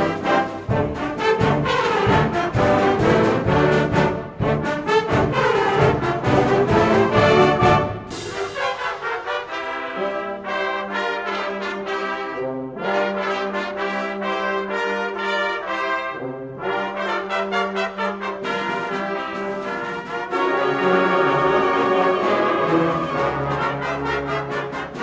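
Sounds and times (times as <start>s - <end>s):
concert band playing slowly: 0.0s - 10.3s.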